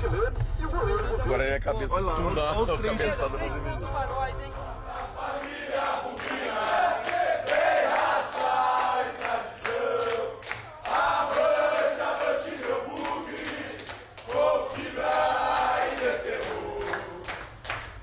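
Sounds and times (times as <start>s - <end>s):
crowd chanting in unison: 4.4s - 17.6s.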